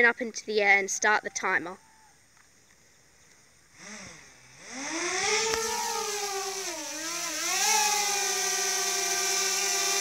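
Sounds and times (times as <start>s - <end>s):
drone propellers whining: 3.7s - 10.0s.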